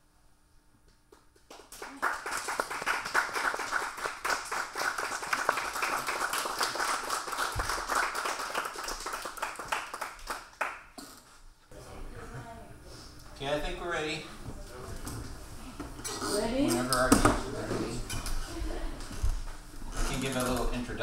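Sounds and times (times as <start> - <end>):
audience applauding: 1.5 - 10.9.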